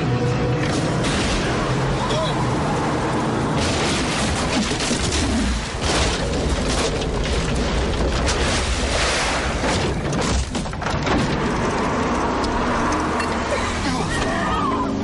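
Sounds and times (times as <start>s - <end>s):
car smashing through wood and crates: 3.5s - 13.5s.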